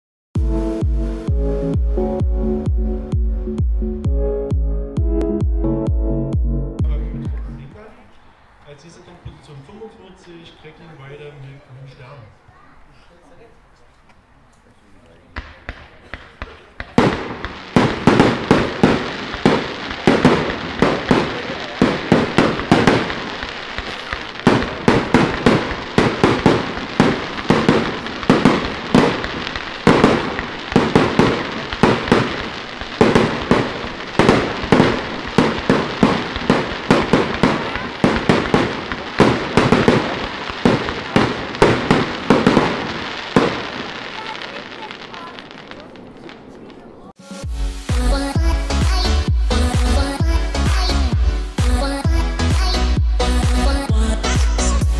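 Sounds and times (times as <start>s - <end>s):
firework crackle: 15.3s - 54.9s.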